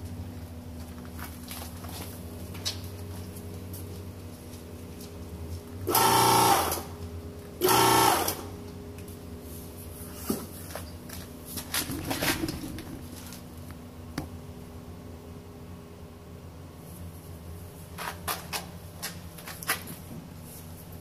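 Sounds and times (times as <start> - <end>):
steady hum: 0.0 - 21.0
pump motor running: 5.8 - 8.7.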